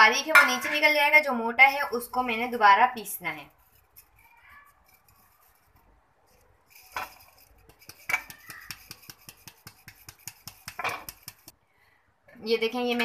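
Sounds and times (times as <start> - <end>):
powder rustling in sieve: 3.3 - 11.5
sieve tapping and rattling: 6.8 - 11.5.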